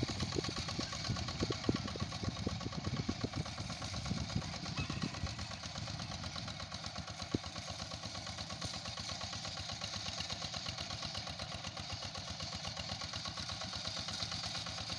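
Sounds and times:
diesel engine chugging: 0.0 - 14.9.

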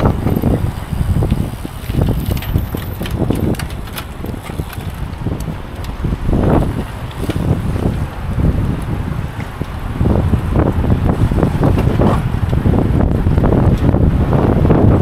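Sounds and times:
small clicks and rattles: 0.0 - 8.1
wind buffeting microphone: 0.0 - 15.0.

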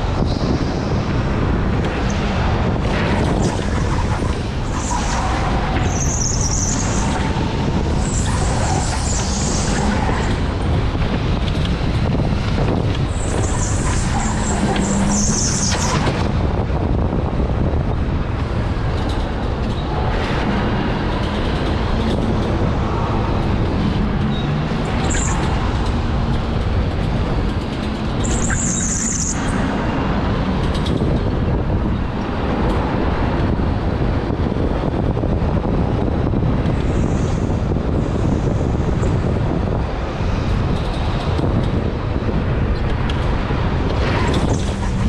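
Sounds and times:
wind and rolling noise: 0.0 - 45.0
high squeals: 3.4 - 10.6, 13.1 - 16.2, 28.2 - 29.8.

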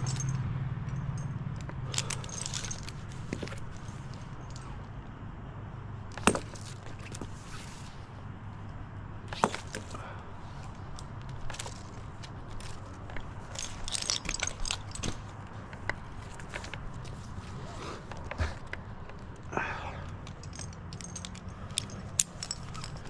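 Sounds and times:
climbing gear knocks: 0.0 - 4.7, 6.1 - 7.4, 9.3 - 10.1, 10.9 - 17.4
metallic clinks: 0.0 - 5.0, 8.6 - 23.0.

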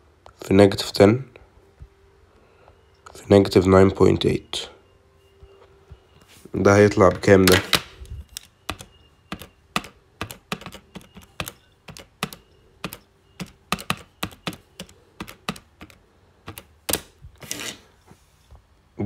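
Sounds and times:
calculator keys clicking: 8.4 - 17.0.

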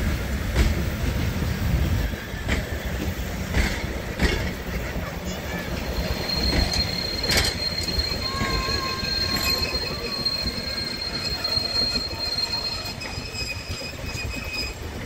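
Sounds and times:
carriages rumbling by: 0.1 - 15.0
train wheels squealing on a curve: 1.4 - 15.0.

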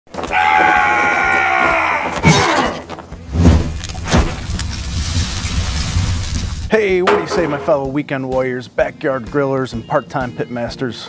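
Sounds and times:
sharp impact hits: 7.0 - 7.9.

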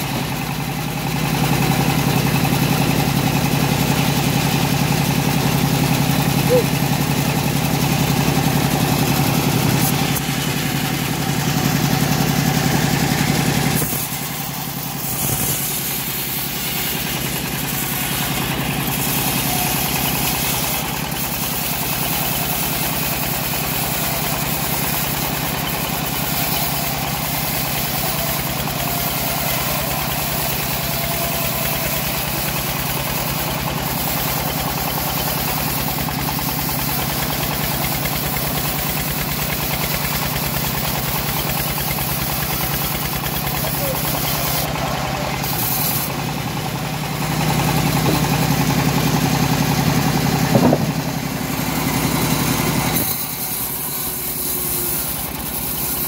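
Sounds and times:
bandsaw sawmill running: 0.0 - 56.0
heavy low hum: 50.2 - 52.0.

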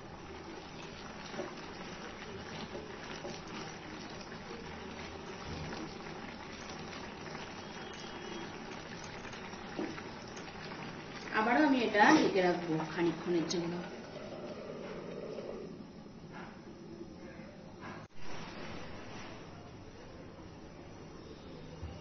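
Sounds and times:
tomatoes bubbling in pan: 0.0 - 17.0.

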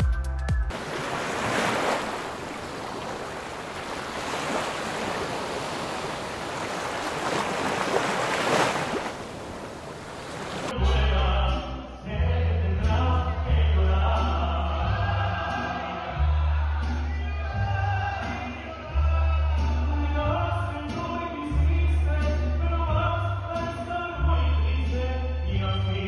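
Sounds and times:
ocean surf on beach: 0.7 - 10.8.

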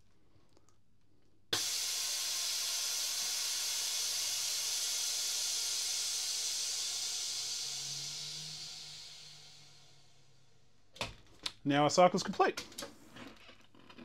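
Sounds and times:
air hissing into vacuum chamber: 1.5 - 10.9.

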